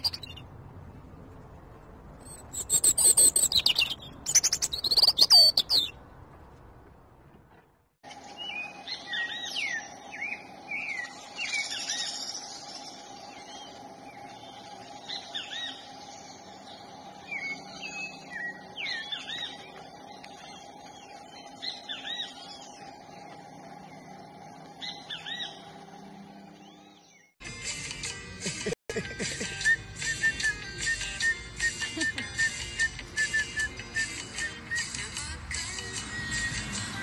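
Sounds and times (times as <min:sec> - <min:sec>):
birds chirping: 0:00.0 - 0:00.6, 0:02.2 - 0:06.3, 0:08.0 - 0:27.4
steady background hum: 0:00.0 - 0:27.2.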